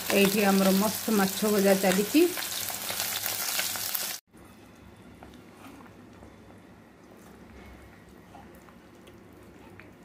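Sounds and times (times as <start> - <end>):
fish sizzling in hot oil: 0.0 - 4.2.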